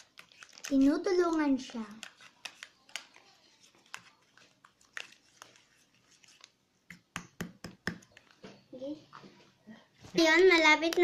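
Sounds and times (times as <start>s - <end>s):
spoon stirring sticky slime: 0.0s - 8.7s.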